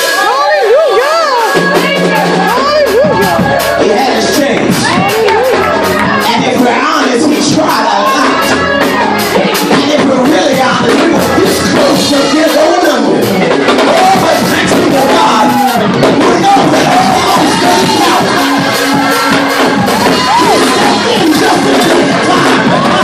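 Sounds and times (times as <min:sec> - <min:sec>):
fast percussive beat: 0:00.0 - 0:23.0
voices singing and shouting: 0:00.0 - 0:23.0
congregation singing: 0:02.7 - 0:23.0.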